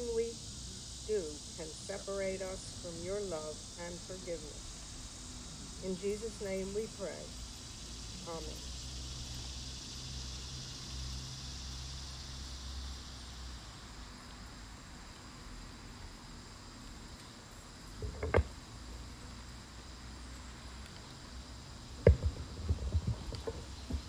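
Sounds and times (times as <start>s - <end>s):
insects droning: 0.0s - 24.0s
microphone handling bumps: 18.0s - 18.5s, 22.0s - 24.0s.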